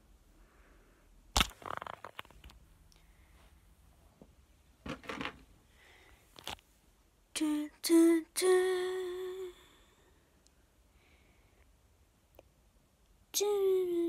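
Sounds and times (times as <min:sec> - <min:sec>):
person humming: 0:07.4 - 0:09.8, 0:13.3 - 0:14.0.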